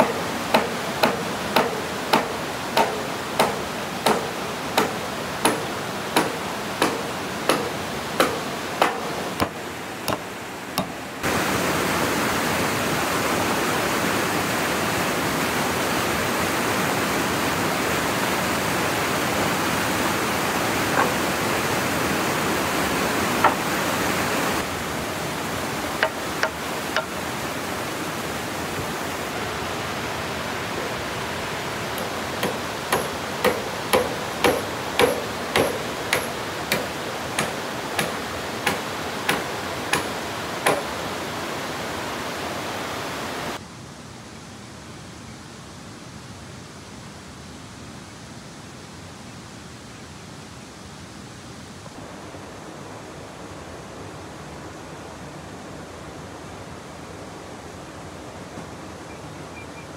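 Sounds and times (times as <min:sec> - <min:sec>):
tool knocking on wood: 0:00.0 - 0:11.0, 0:20.9 - 0:21.2, 0:23.4 - 0:23.7, 0:25.9 - 0:27.2, 0:32.0 - 0:40.9.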